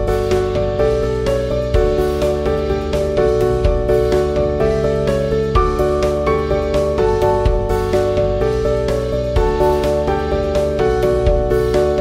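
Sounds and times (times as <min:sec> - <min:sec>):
instrumental music with beat: 0:00.0 - 0:12.0.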